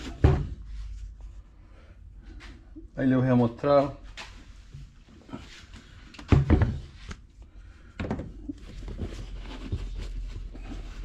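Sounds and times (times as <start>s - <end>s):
rustling and scraping inside boot: 8.3s - 11.0s.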